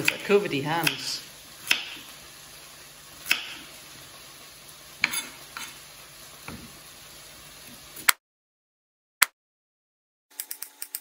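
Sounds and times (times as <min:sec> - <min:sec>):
knife chopping on wooden board: 0:01.6 - 0:02.0, 0:03.2 - 0:03.7, 0:05.0 - 0:05.7.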